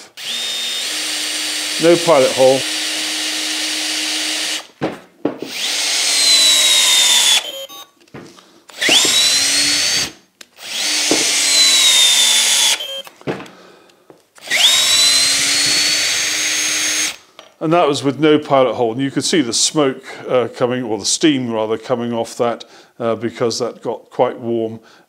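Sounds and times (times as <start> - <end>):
drill clicks: 0.1 - 4.8, 5.5 - 7.9, 8.7 - 13.6, 14.4 - 17.2
cordless drill motor whine: 0.2 - 4.7, 5.5 - 7.9, 8.7 - 13.1, 14.4 - 17.2.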